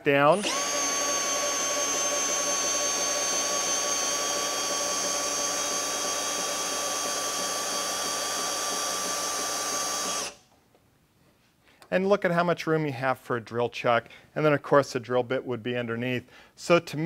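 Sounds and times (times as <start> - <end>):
cordless drill whining: 0.3 - 10.5.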